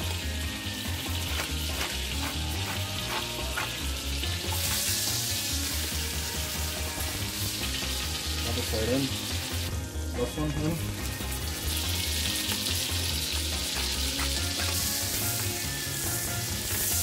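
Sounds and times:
meat sizzling in a pot: 0:00.0 - 0:17.0
salt shaker shakes: 0:01.3 - 0:03.8.

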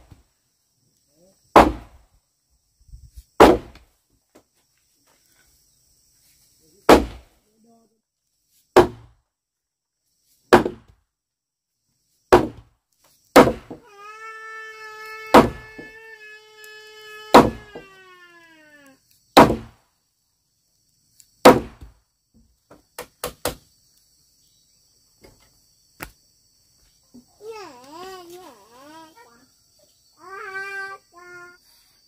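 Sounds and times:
wooden mallet pounding timber: 0:01.6 - 0:02.0, 0:03.4 - 0:03.8, 0:06.9 - 0:07.2, 0:08.8 - 0:09.1, 0:10.5 - 0:11.0, 0:12.3 - 0:12.7, 0:13.4 - 0:13.8, 0:15.3 - 0:15.9, 0:17.3 - 0:17.9, 0:19.4 - 0:19.7, 0:21.4 - 0:21.9.

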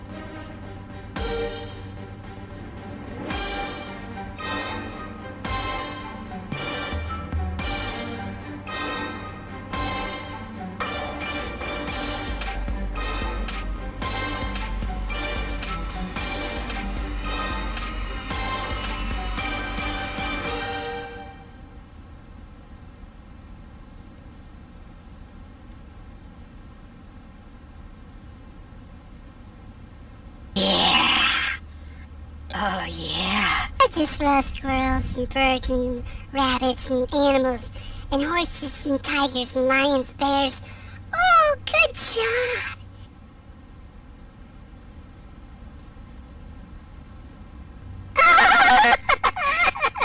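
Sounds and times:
faint insect trilling: 0:00.0 - 0:10.8, 0:21.3 - 0:50.0
crickets chirping: 0:00.0 - 0:50.0.

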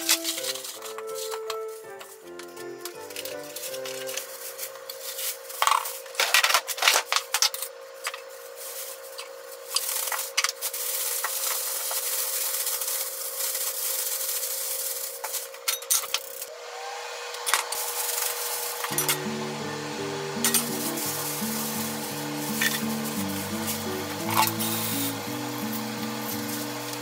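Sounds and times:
plastic bag crinkling and rustling: 0:00.0 - 0:07.6, 0:08.2 - 0:15.6.

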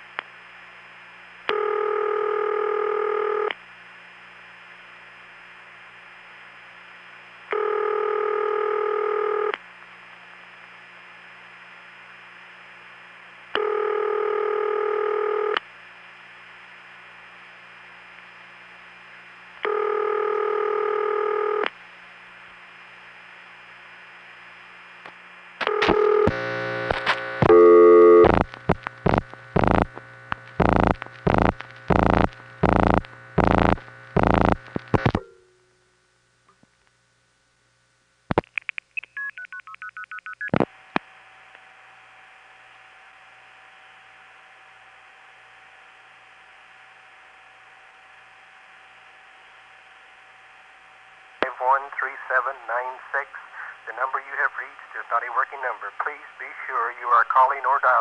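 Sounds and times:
telephone ringback tone: 0:01.5 - 0:03.5, 0:07.5 - 0:09.5, 0:13.6 - 0:15.6, 0:19.6 - 0:21.6, 0:25.7 - 0:26.4, 0:27.5 - 0:28.3
faint line hum: 0:21.7 - 0:38.4.

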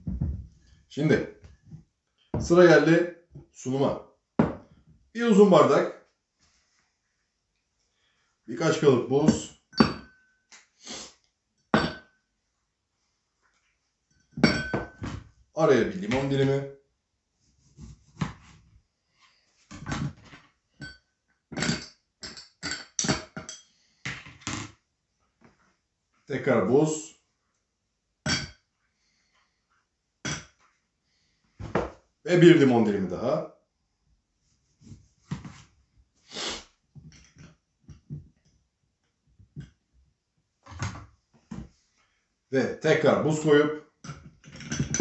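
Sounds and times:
knife knocking on cutting board: 0:04.4 - 0:04.6
short breath of noise: 0:36.3 - 0:36.7.

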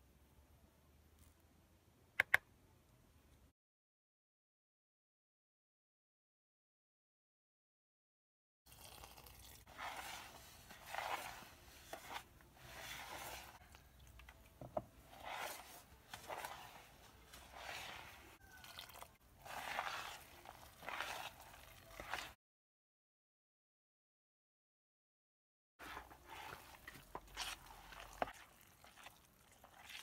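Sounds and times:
sharp click: 0:02.2 - 0:02.5
hand squishing wet batter: 0:08.7 - 0:22.4, 0:25.8 - 0:30.0.

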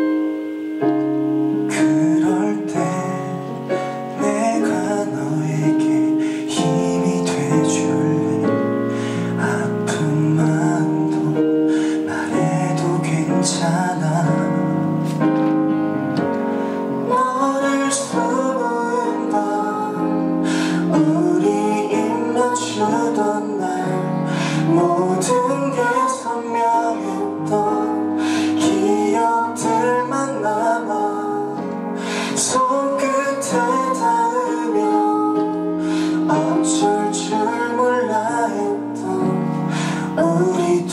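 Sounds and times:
instrumental accompaniment: 0:00.0 - 0:40.9
man singing a ballad: 0:01.7 - 0:15.1, 0:17.1 - 0:40.9
woman singing: 0:17.1 - 0:20.2, 0:20.9 - 0:23.9, 0:24.7 - 0:28.0, 0:28.6 - 0:31.6, 0:32.4 - 0:39.3.

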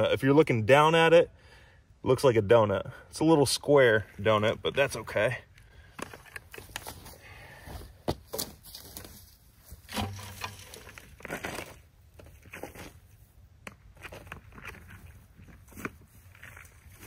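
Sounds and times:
wood chips rustling by hand: 0:08.7 - 0:13.0.

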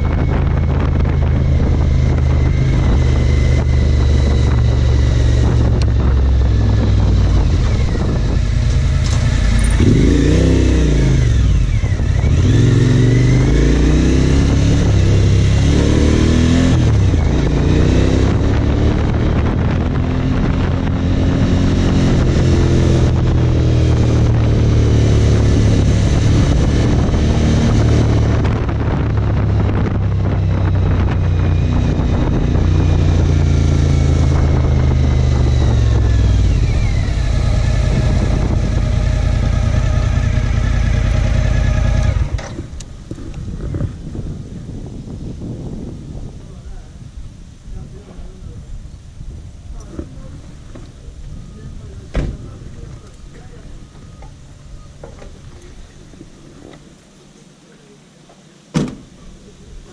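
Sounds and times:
motorcycle engine running: 0:00.0 - 0:44.8.

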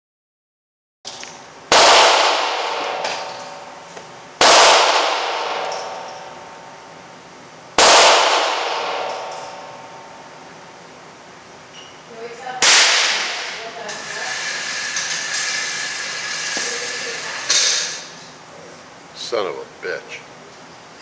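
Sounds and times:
rifle shots: 0:01.7 - 0:03.3, 0:04.4 - 0:06.2, 0:07.8 - 0:09.5, 0:12.6 - 0:13.6
echoing ring: 0:02.2 - 0:04.0, 0:04.9 - 0:06.9, 0:08.3 - 0:10.5.

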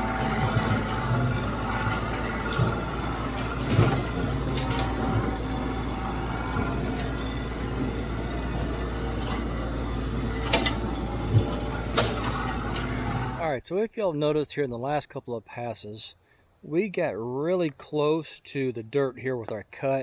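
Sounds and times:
tractor diesel engine running: 0:00.0 - 0:13.6.

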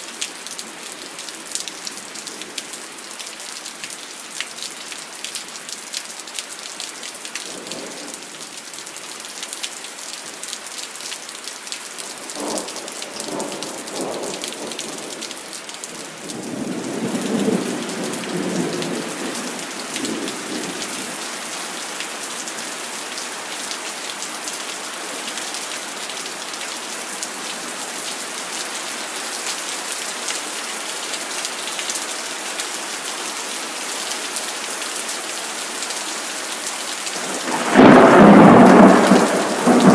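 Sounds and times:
heavy rain: 0:00.0 - 0:39.9
thunder rumbling: 0:37.2 - 0:39.9.

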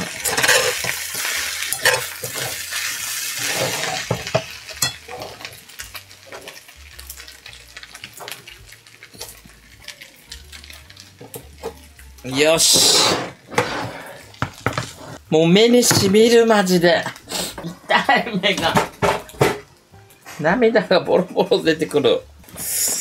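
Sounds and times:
metal spoon scraping a pan: 0:00.0 - 0:02.7, 0:03.3 - 0:05.6
rice sizzling in a frying pan: 0:00.0 - 0:19.5.

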